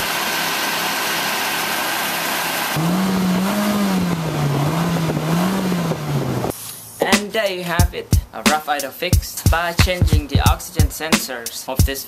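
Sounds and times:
car engine revving: 0.0s - 6.5s.

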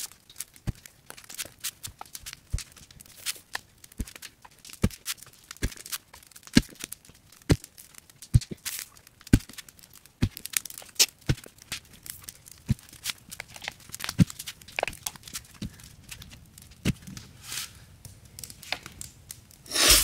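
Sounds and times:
spade crunching into soil: 19.7s - 20.0s.

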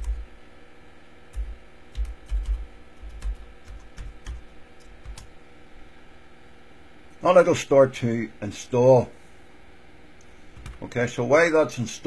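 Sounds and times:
typing on computer keyboard: 1.3s - 5.3s.

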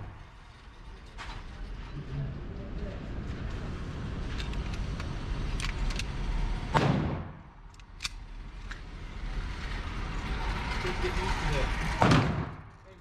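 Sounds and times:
gunshot bang: 6.7s - 7.4s, 12.0s - 12.7s.

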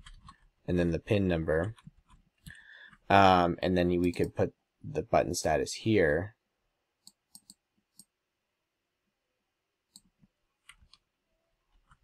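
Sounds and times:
mouse and keyboard clicks: 7.0s - 8.1s.

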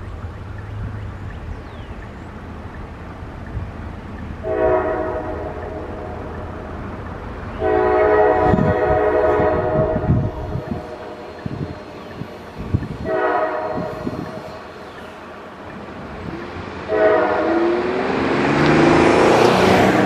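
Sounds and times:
train rumble: 0.0s - 20.0s
locomotive air horn blasts: 4.4s - 6.2s, 7.6s - 12.0s, 13.0s - 14.8s, 16.9s - 17.9s.

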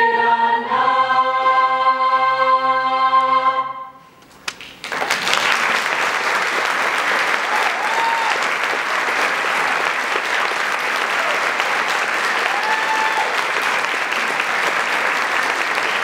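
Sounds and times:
choir singing held chord: 0.0s - 3.8s
audience applause: 4.3s - 16.0s.

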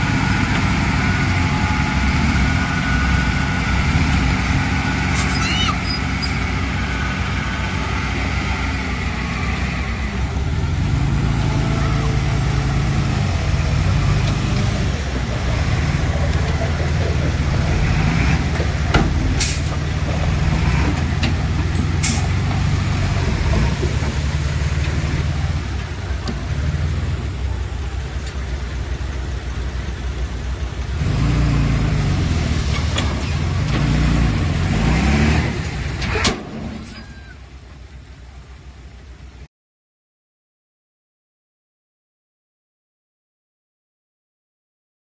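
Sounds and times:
bulldozer diesel engine running: 0.0s - 39.5s.

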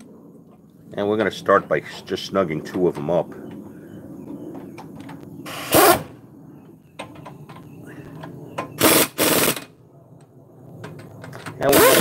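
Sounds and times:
pneumatic impact wrench bursts: 5.4s - 6.1s, 8.8s - 9.7s, 11.7s - 12.0s.

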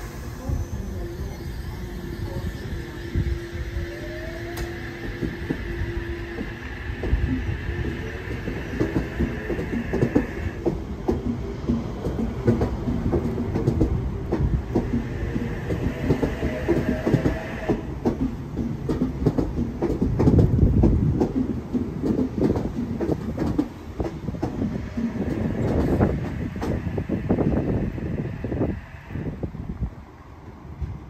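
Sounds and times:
traction motors whining: 0.0s - 18.9s, 24.2s - 29.5s
train wheels clicking over rail joints: 4.0s - 29.3s.

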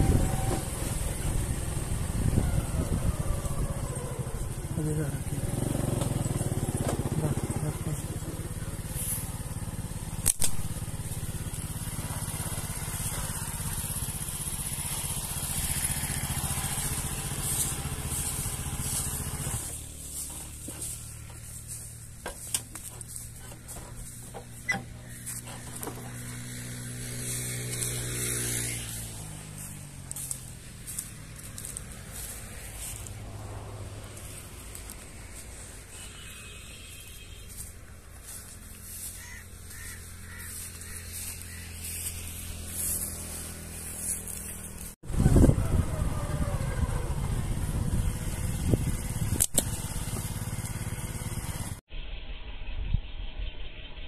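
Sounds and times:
wind rumble: 0.0s - 4.7s, 45.0s - 50.1s
footsteps through dry grass: 0.0s - 51.8s
engine hum: 0.0s - 54.0s
sharp clicks: 10.2s - 10.8s.

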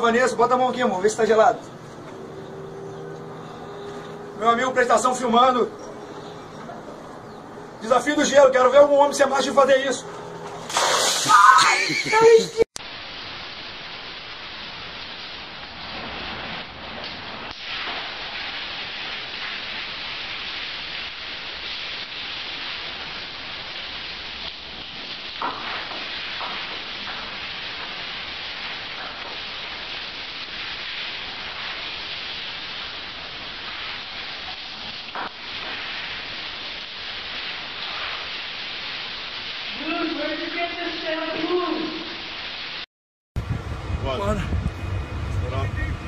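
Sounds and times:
shower water spraying on tiles: 7.9s - 42.8s.

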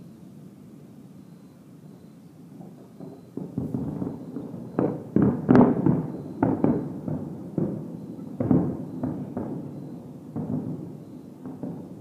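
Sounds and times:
distant fireworks booms: 2.5s - 12.0s.

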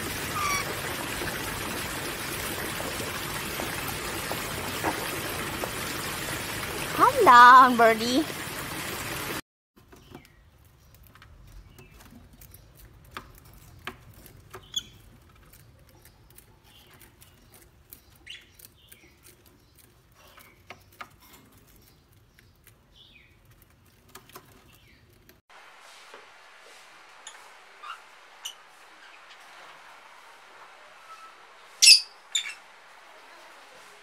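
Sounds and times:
lovebirds chirping: 14.5s - 23.8s, 30.9s - 32.8s.

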